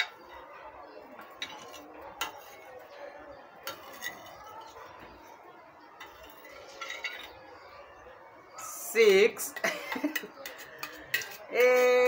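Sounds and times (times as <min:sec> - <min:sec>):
metal spoon clinking on glass: 0:09.6 - 0:12.0.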